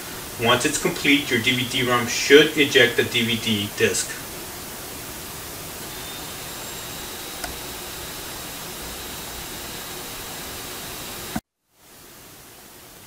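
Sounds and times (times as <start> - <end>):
cooling fans hissing: 0.0 - 13.0
faint high whine: 0.0 - 13.0
click: 7.4 - 7.6.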